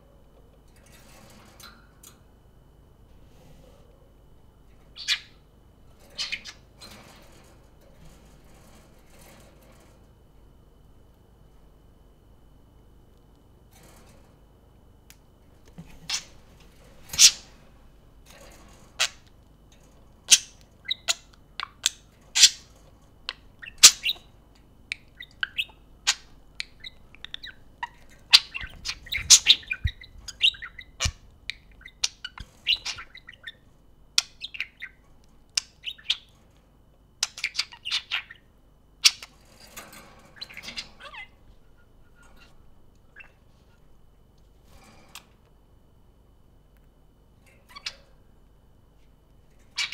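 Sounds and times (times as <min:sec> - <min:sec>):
budgerigars chirping: 0:04.9 - 0:05.4, 0:06.1 - 0:06.7, 0:16.1 - 0:16.3, 0:17.2 - 0:17.5, 0:19.0 - 0:19.2, 0:20.3 - 0:22.8, 0:23.6 - 0:24.3, 0:24.9 - 0:33.6, 0:34.2 - 0:35.0, 0:35.6 - 0:36.3, 0:37.2 - 0:39.4, 0:40.3 - 0:41.4, 0:42.3 - 0:43.4, 0:47.6 - 0:48.1, 0:49.7 - 0:49.9.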